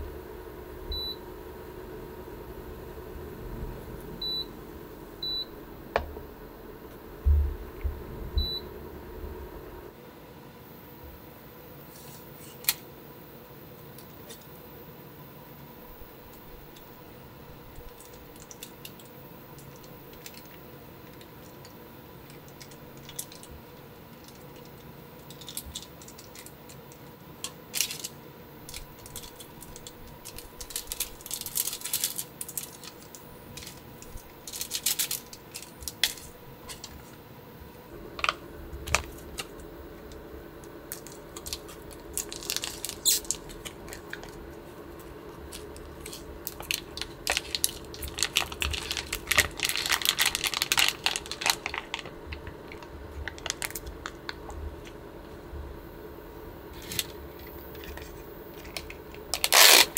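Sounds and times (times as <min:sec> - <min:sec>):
steady low hum: 0:00.0 - 0:59.9
plastic packets crinkling: 0:17.8 - 0:37.1, 0:38.2 - 0:54.9, 0:56.8 - 0:59.9.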